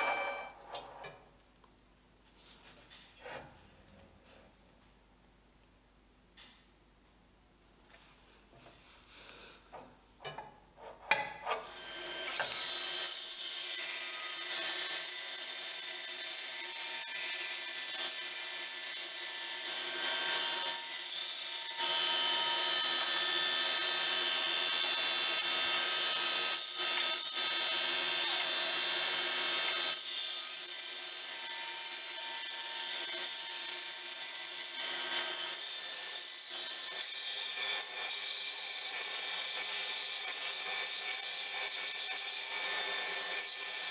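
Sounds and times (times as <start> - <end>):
band saw cutting board: 0.0 - 0.6, 10.8 - 38.2.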